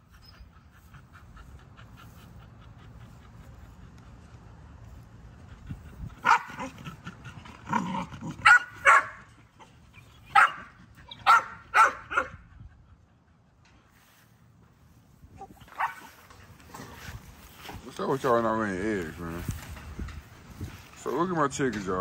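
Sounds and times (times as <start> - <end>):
dogs barking: 6.2 - 12.4, 15.4 - 16.4.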